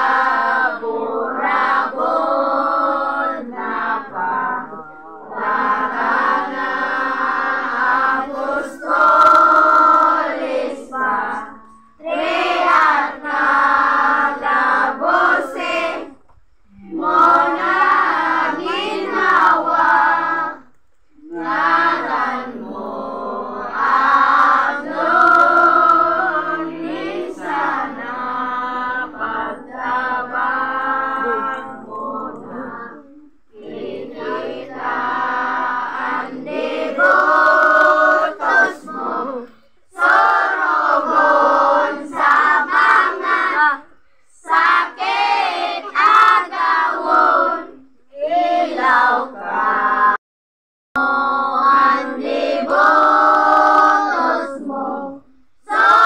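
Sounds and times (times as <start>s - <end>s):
women and children singing a hymn: 0.0s - 50.2s, 51.0s - 56.0s.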